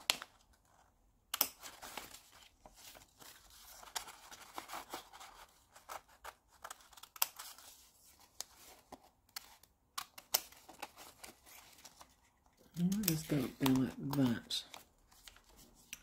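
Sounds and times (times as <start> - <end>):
scissors snipping paper: 1.3 - 2.1, 5.9 - 7.6, 9.3 - 12.0, 12.6 - 16.0
paper rustling: 1.6 - 16.0.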